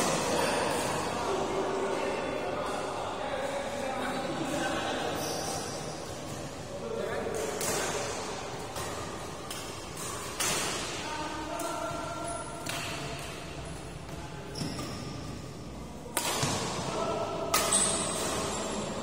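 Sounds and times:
racket hitting shuttlecock: 7.4 - 11.0, 16.1 - 18.5.

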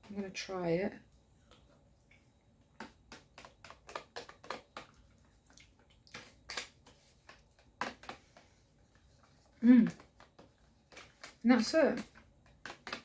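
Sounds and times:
spoon and plastic tub handling: 2.8 - 5.4, 6.1 - 13.0.

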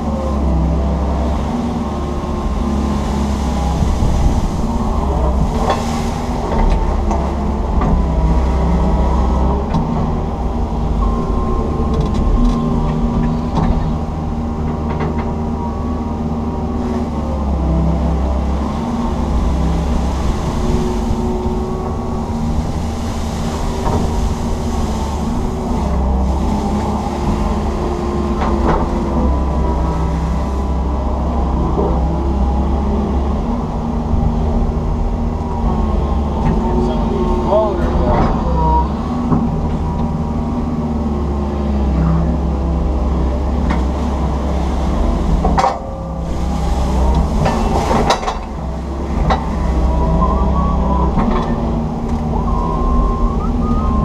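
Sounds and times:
excavator diesel engine drone: 0.0 - 54.0.

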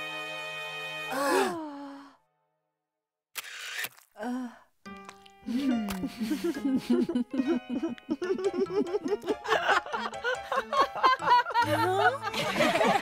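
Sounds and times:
bouncy cartoon music: 4.9 - 13.0.

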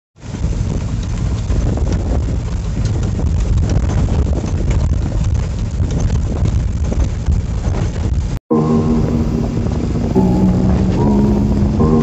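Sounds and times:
truck cab rattling: 0.2 - 8.4
truck engine rumbling: 0.2 - 12.0.

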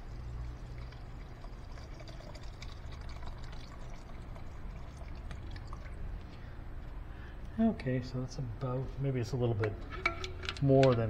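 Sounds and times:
liquid pouring into tub: 0.0 - 6.4.

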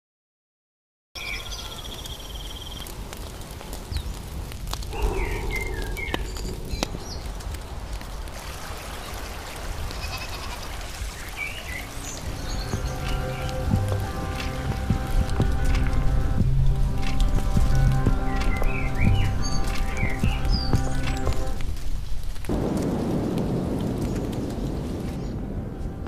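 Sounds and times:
small birds chirping and trilling: 1.2 - 4.2, 4.9 - 7.8, 11.2 - 15.0, 18.0 - 21.6
steady low rumble: 4.9 - 8.3, 12.2 - 21.8
animal bleat: 9.9 - 10.7.

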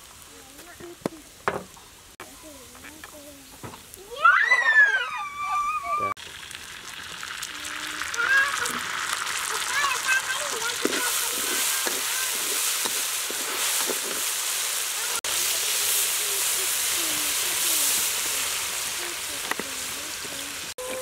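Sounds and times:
sauce sizzling in a wok: 0.0 - 5.4, 6.1 - 21.0
metal spatula scraping a pan: 10.5 - 14.3.

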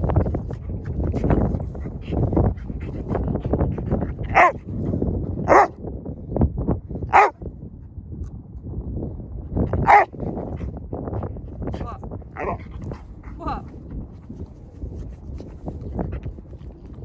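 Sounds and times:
dog barking: 4.3 - 4.6, 5.5 - 5.7, 7.1 - 7.4, 9.8 - 10.1.

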